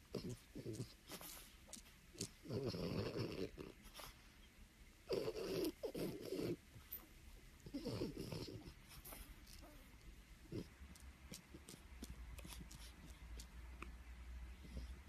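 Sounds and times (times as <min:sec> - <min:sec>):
dog snoring: 0:00.0 - 0:04.1, 0:05.1 - 0:06.6, 0:07.6 - 0:09.8, 0:10.4 - 0:13.5, 0:14.5 - 0:15.0.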